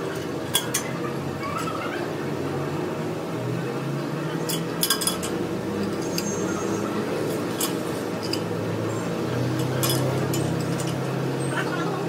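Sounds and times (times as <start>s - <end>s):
metal tools clinking: 0.0s - 0.9s, 4.3s - 6.3s, 7.5s - 8.5s, 9.4s - 11.1s.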